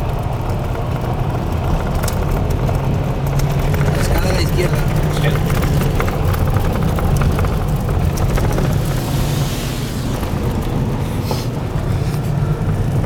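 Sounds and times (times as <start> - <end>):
engine and tyres rumbling: 0.0 - 13.0
hiss: 9.0 - 10.2.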